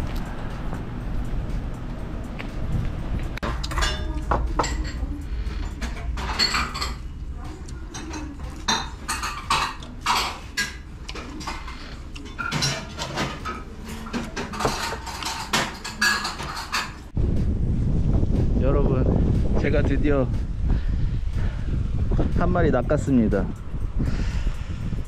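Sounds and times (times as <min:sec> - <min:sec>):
tableware clinking: 0:05.8 - 0:07.1, 0:07.9 - 0:17.1.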